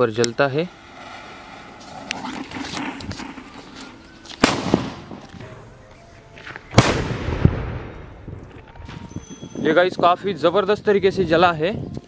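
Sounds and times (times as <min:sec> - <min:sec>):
firecracker bang: 0:04.4 - 0:05.7, 0:06.7 - 0:09.1.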